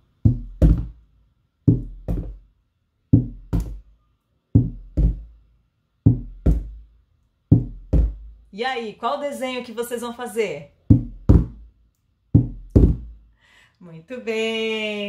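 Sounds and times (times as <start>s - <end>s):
mallet thuds on homemade drum: 0.2s - 1.0s, 1.7s - 2.4s, 3.1s - 3.8s, 4.6s - 5.3s, 6.1s - 6.8s, 7.5s - 8.4s, 10.9s - 11.7s, 12.4s - 13.2s.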